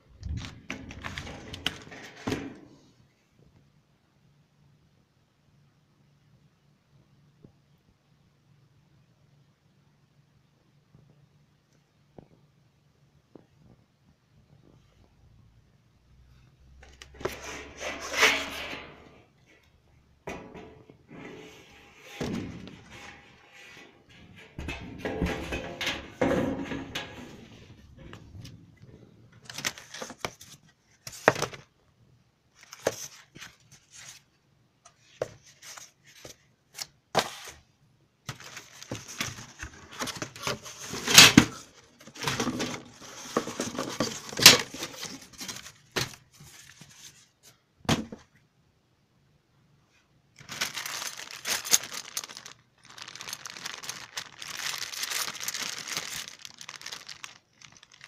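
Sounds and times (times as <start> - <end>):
cardboard and plastic wrap tearing: 38.3 - 46.9, 50.4 - 58.0
plastic bag crinkling: 50.4 - 58.0.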